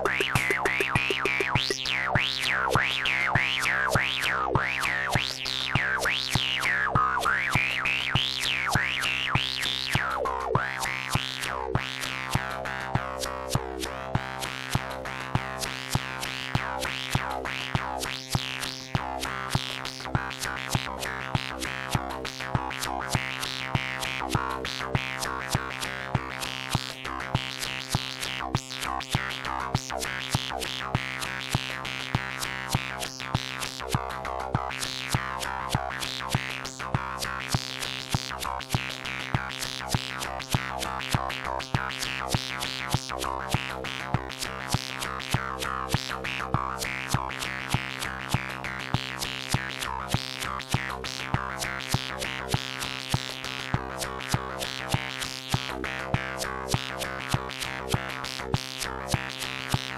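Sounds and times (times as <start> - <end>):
held synth tone: 0.0 - 1.8
sharp percussive hits: 0.0 - 1.8.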